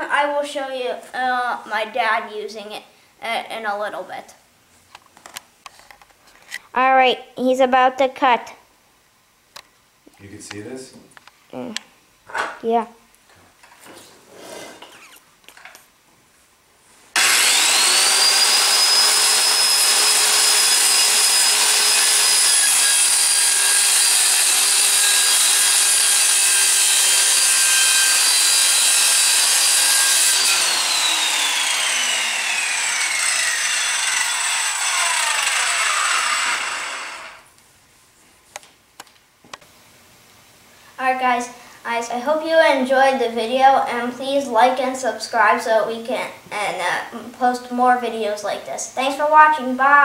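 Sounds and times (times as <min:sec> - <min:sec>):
circular saw cutting pegboard: 0:17.1 - 0:37.5
saw blade winding down: 0:17.2 - 0:37.5
saw starting up whine: 0:17.2 - 0:37.5.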